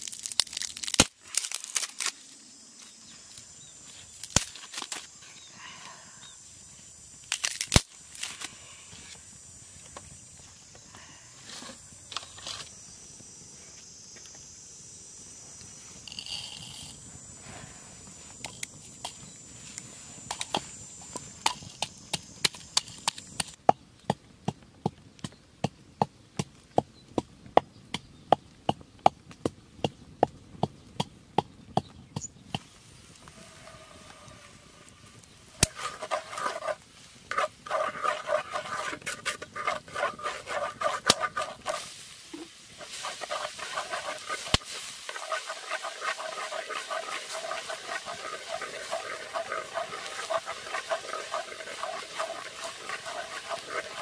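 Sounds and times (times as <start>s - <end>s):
stirring in a wok: 35.6s - 54.0s
food sizzling in hot oil: 39.6s - 54.0s.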